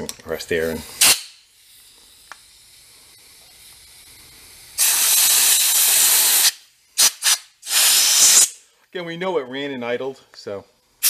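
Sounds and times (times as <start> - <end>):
faint air hiss: 0.0 - 11.0
loud blast of compressed air: 0.8 - 8.6.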